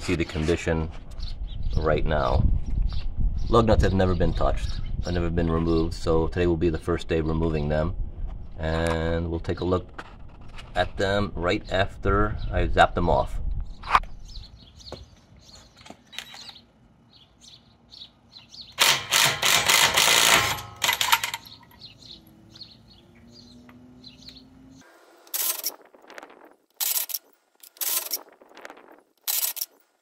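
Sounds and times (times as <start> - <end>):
impact wrench hammering: 18.8 - 21.6.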